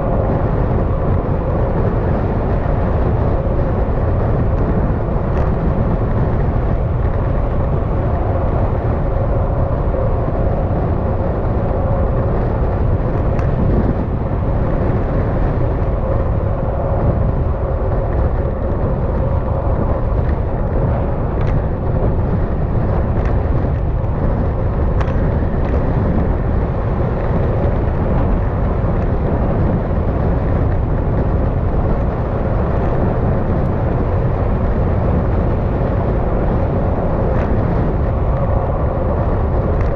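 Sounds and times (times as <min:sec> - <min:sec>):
wind and road noise: 0:00.0 - 0:39.9.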